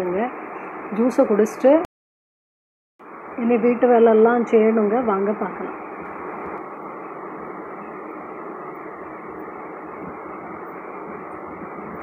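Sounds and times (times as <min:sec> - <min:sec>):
low hissing rumble: 0:03.0 - 0:12.0.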